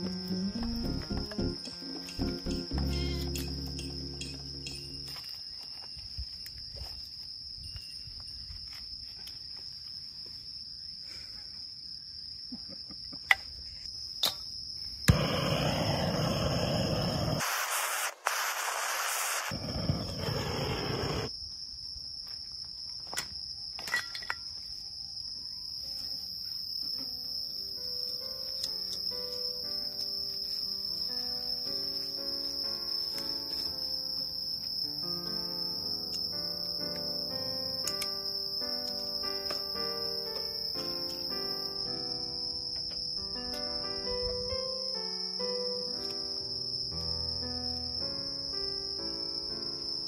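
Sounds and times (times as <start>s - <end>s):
insects trilling: 0.0s - 18.1s, 19.0s - 50.0s
gas torch hissing: 15.1s - 21.3s.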